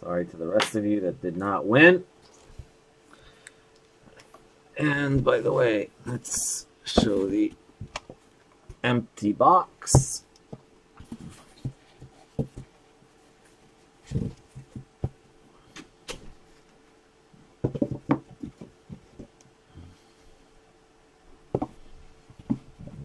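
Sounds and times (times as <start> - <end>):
faint steady hum: 0.0 - 23.0
hard objects knocking and clicking: 10.0 - 12.8, 17.6 - 19.4, 21.5 - 23.0.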